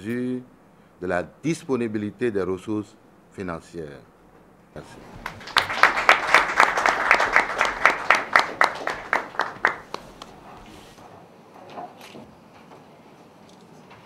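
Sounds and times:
small group applauding: 4.8 - 10.7.

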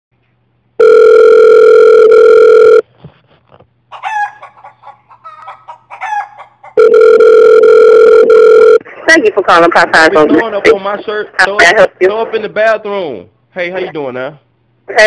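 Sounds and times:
telephone ringback tone: 0.8 - 2.8, 6.8 - 8.8
chicken clucking and squawking: 3.9 - 6.8.

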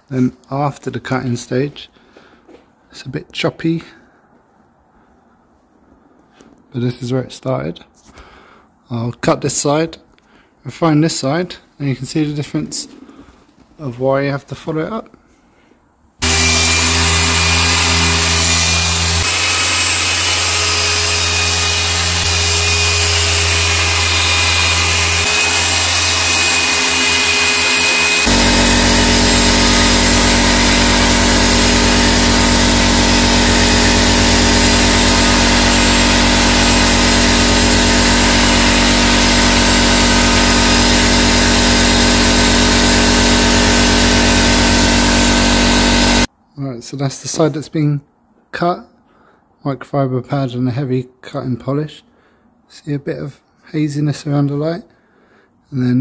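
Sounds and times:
machine polisher running: 16.2 - 46.3.

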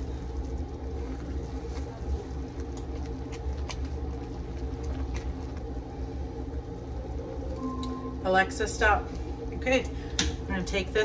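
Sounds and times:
bubbles popping in boiling pot: 0.0 - 7.5
steady low hum: 0.0 - 11.0.

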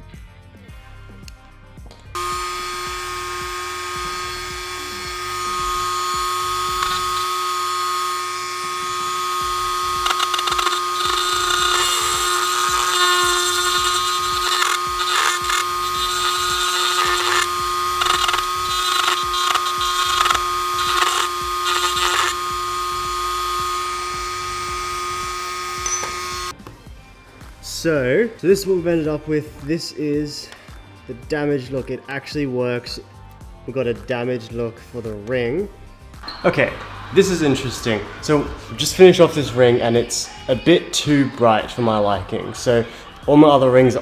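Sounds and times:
bit grinding against metal ring: 2.2 - 26.5
rotary tool running: 2.2 - 26.5.

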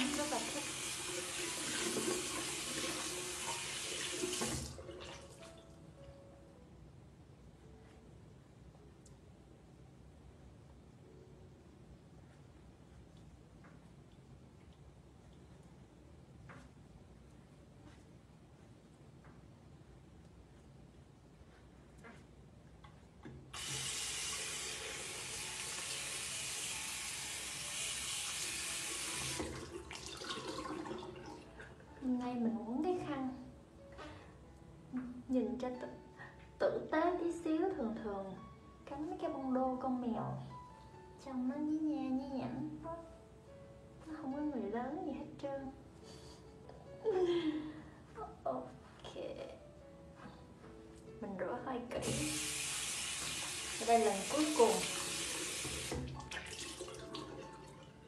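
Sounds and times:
water running from a sink tap: 0.0 - 5.5, 23.5 - 31.7, 52.0 - 57.9.

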